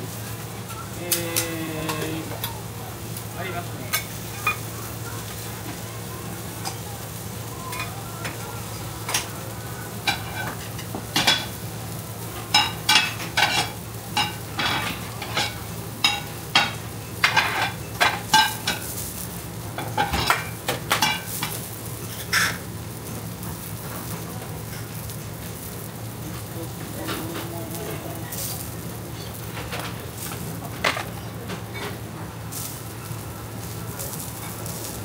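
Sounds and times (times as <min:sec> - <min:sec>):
pancake sizzling: 0:00.0 - 0:35.0.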